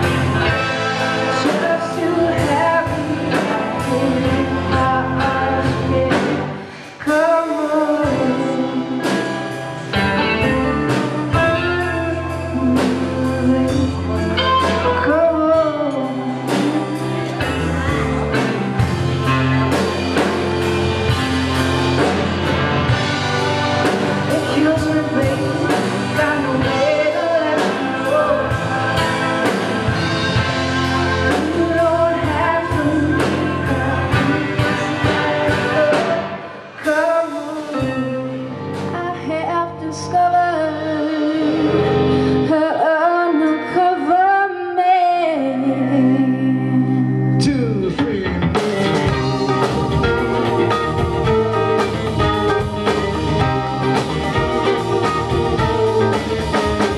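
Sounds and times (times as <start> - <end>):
woman singing: 0.0 - 19.8, 23.9 - 47.4, 55.3 - 56.9
drum kit: 0.0 - 39.5, 47.4 - 56.9
live rock band playing: 0.0 - 56.9.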